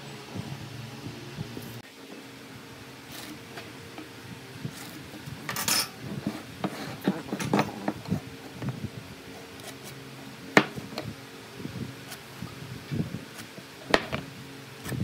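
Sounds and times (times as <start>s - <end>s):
scrape on wooden workbench: 4.8s - 8.0s.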